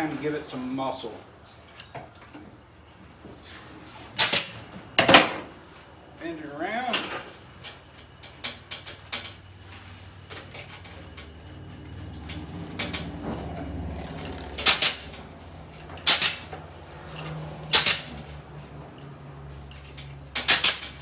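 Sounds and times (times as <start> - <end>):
pneumatic gun snapping: 4.2 - 4.6, 14.1 - 15.2, 16.0 - 16.6, 17.6 - 18.2, 20.3 - 21.0
wire rustling and clinking: 7.5 - 21.0.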